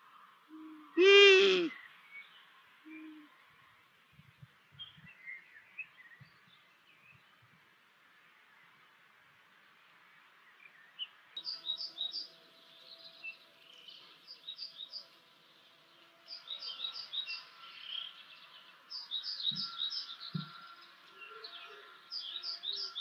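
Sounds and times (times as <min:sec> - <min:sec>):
low cooing: 0:00.5 - 0:01.8
songbirds singing: 0:00.6 - 0:23.0.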